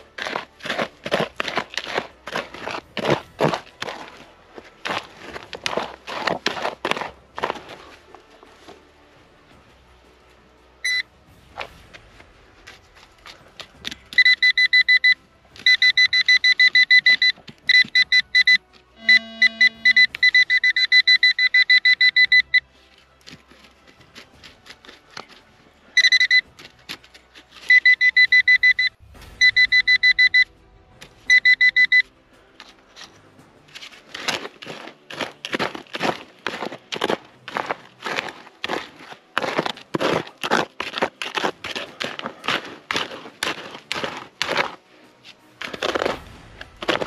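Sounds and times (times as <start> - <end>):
trowel digging stony soil: 0.0 - 8.8, 22.6 - 28.2, 32.5 - 47.0
metal detector beeping: 10.8 - 11.1, 14.1 - 22.7, 26.0 - 26.5, 27.6 - 30.6, 31.2 - 32.2.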